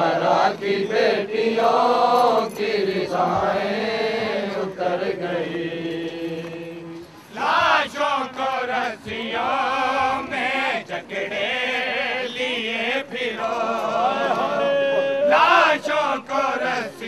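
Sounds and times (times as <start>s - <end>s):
men chanting a mourning lament: 0.0s - 17.0s.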